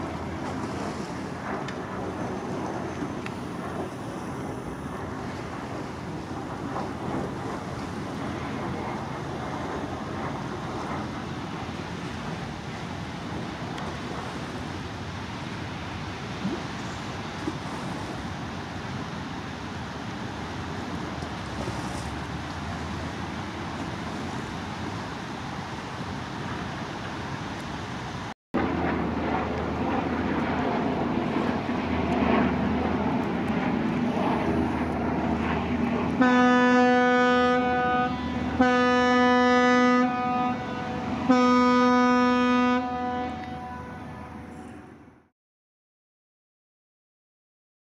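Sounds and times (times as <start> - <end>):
wind and water rushing: 0.0 - 45.0
boat horn blasts: 36.2 - 45.0.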